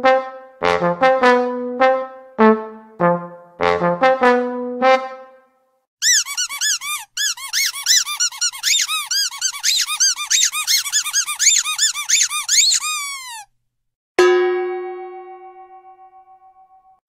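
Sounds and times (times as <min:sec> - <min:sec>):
comedy squeaks: 0:06.0 - 0:13.5.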